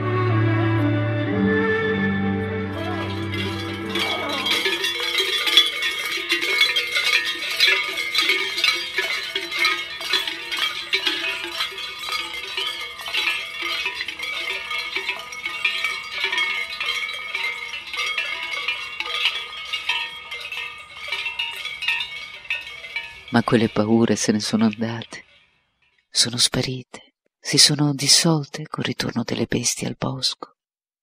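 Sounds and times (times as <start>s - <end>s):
cowbells clanging: 2.7s - 26.4s.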